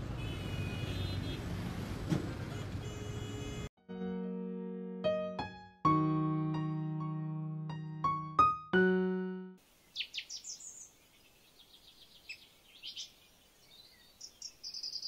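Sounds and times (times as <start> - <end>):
sustained piano notes: 3.8 - 9.6
small birds chirping: 9.6 - 15.0.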